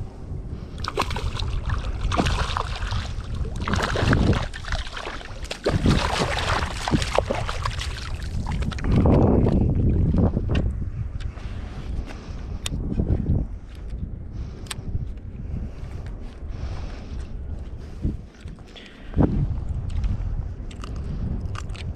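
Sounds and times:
wind noise on microphone: 0:00.0 - 0:21.9
fish splashing at surface: 0:00.8 - 0:08.7.

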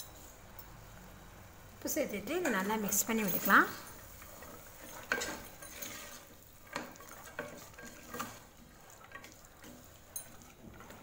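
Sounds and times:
spatula scraping thick food: 0:04.2 - 0:11.0.

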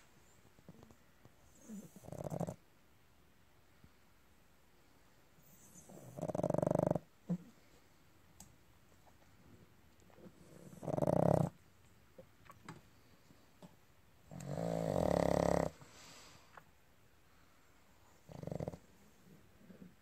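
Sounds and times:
dog snoring: 0:01.4 - 0:02.6, 0:05.4 - 0:07.1, 0:10.3 - 0:11.6, 0:14.3 - 0:15.8, 0:18.2 - 0:19.9.

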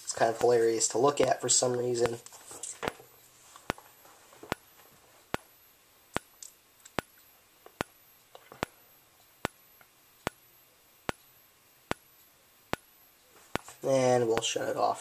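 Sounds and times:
faint high whine: 0:00.0 - 0:15.0
strobe clicking: 0:06.1 - 0:13.7.

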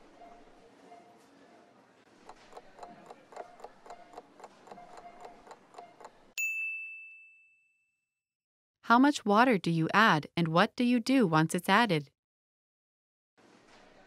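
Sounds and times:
cartoon clock ticking: 0:02.3 - 0:06.4
timer ding: 0:04.8 - 0:08.0.

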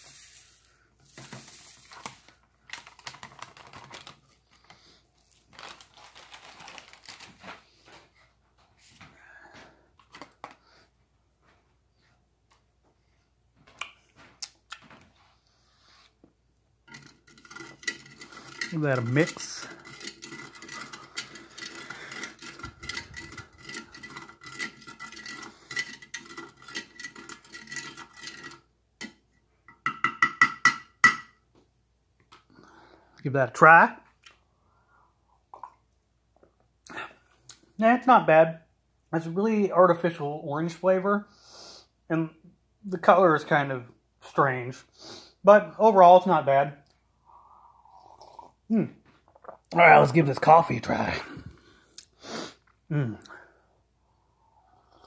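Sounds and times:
foil pouches crinkling: 0:01.2 - 0:07.8.

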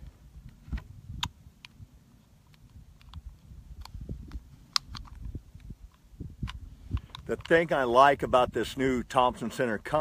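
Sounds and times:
wind rumble on microphone: 0:00.0 - 0:02.0, 0:02.7 - 0:10.0
metallic clicks of cartridges: 0:02.4 - 0:07.8.

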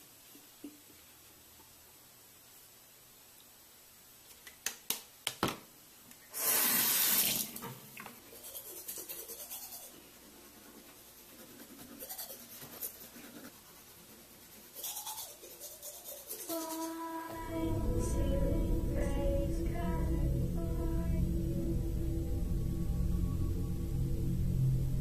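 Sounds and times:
bathroom tap running: 0:06.4 - 0:07.8
toothbrush scrubbing teeth: 0:08.3 - 0:17.2.

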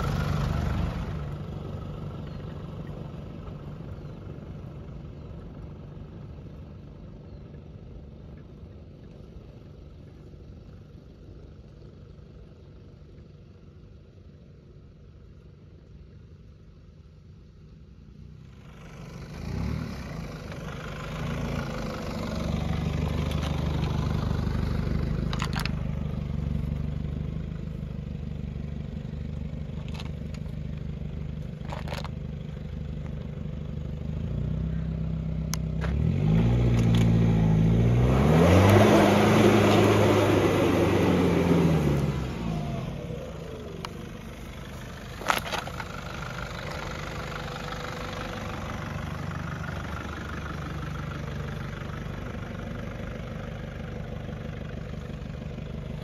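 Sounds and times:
diesel engine revving: 0:00.0 - 0:06.8, 0:18.4 - 0:56.0.

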